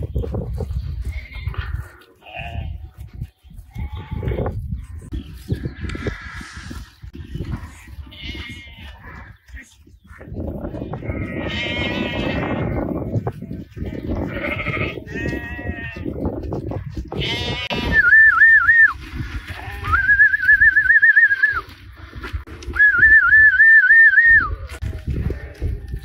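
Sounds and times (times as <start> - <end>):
sheep bleating: 1.0 - 2.8, 3.7 - 4.6, 7.5 - 9.3, 10.8 - 13.0, 13.7 - 16.2, 17.1 - 18.2, 19.5 - 20.2.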